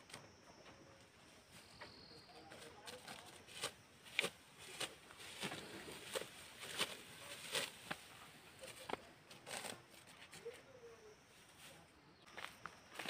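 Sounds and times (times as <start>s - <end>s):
sickle cutting rice stalks: 1.5s - 11.9s.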